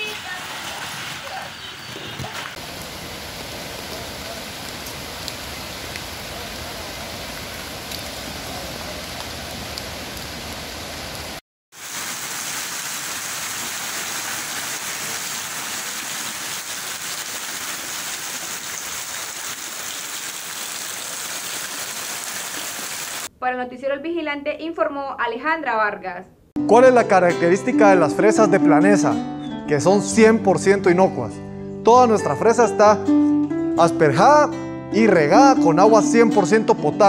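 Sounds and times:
heavy rain pouring: 0:00.0 - 0:23.3.

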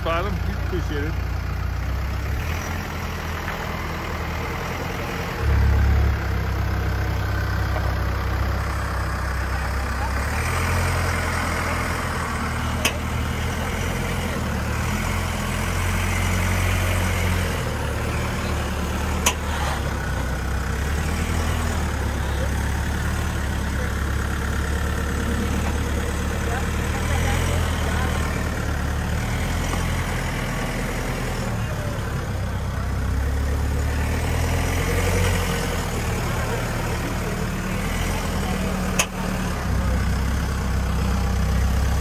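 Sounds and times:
truck engine at low revs: 0:00.0 - 0:42.0.

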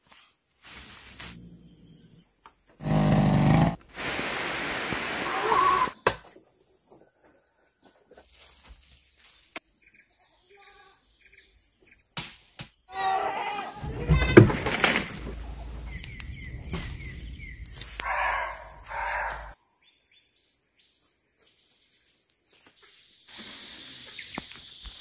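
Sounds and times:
hiss: 0:00.6 - 0:01.5, 0:02.8 - 0:06.0, 0:23.3 - 0:24.4
goats bleating: 0:13.0 - 0:14.7
faint chirps: 0:15.2 - 0:22.0.

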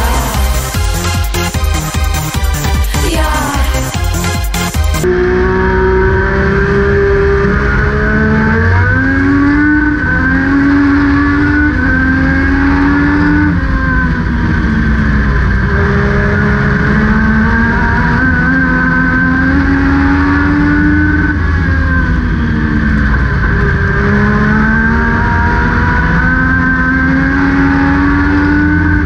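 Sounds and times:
electronic intro music: 0:00.0 - 0:05.1
race car engine accelerating: 0:00.0 - 0:29.0.

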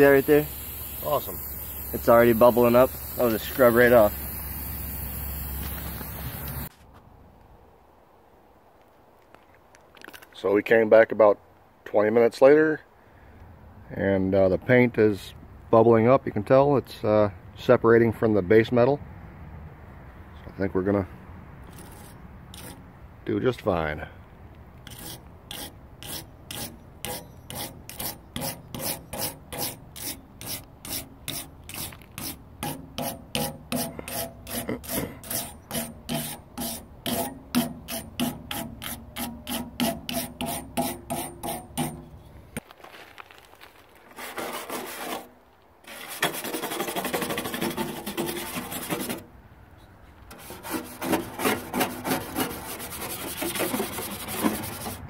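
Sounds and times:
scraping paint off steel: 0:00.0 - 0:06.7, 0:21.6 - 0:22.9, 0:24.8 - 0:42.4, 0:44.1 - 0:49.3, 0:50.2 - 0:55.0
wire brush scrubbing paint: 0:00.0 - 0:06.7, 0:21.7 - 0:22.8, 0:24.8 - 0:42.2, 0:44.1 - 0:49.3, 0:50.3 - 0:55.0.

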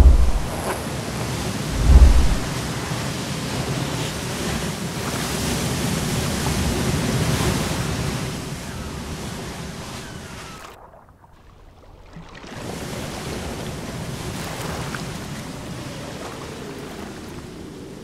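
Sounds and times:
deep thud: 0:00.0 - 0:00.7, 0:01.7 - 0:02.6
ocean surf breaking: 0:00.0 - 0:10.8
wind: 0:00.0 - 0:18.0.

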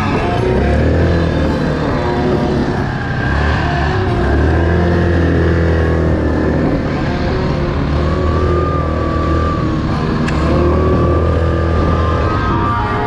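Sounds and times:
atv engine cruising: 0:00.0 - 0:13.0.

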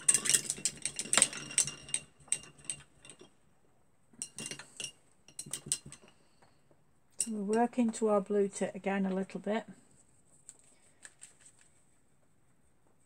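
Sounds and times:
paintbrush handle clinking on glass: 0:00.0 - 0:03.4, 0:04.1 - 0:06.4, 0:07.1 - 0:07.9.

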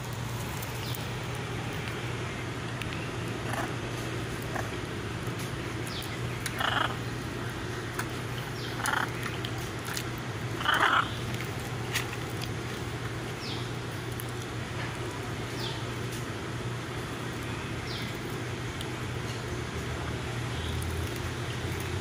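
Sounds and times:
macaw harsh calls: 0:05.9 - 0:07.2, 0:08.4 - 0:09.3, 0:10.5 - 0:11.3.

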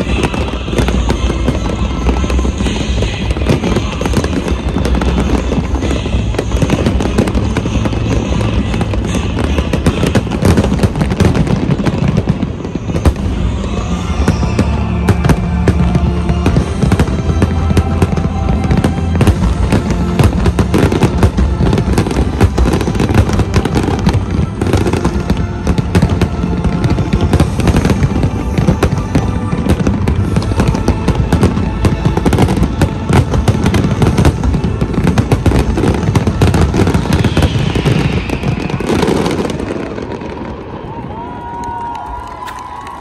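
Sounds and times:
fireworks bangs and crackling: 0:00.0 - 0:43.0
music playing: 0:00.0 - 0:43.0.

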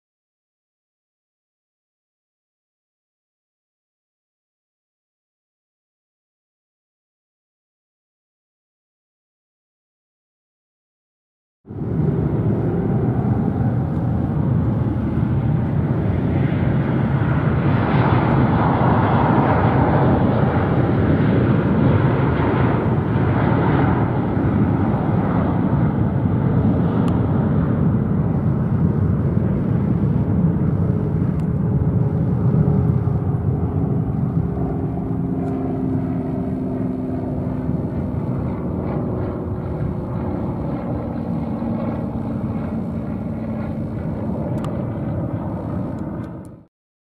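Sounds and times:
jet engines rumbling: 0:11.7 - 0:46.7.

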